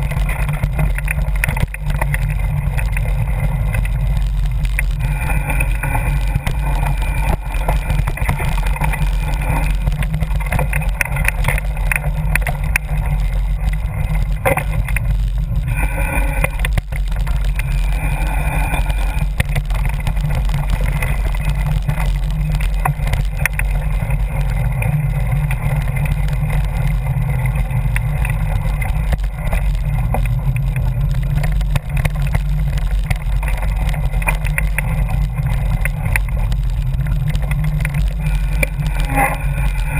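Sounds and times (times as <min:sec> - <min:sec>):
bike tyres and frame rattling: 0:00.0 - 0:39.9
wind rumble on microphone: 0:00.0 - 0:39.9.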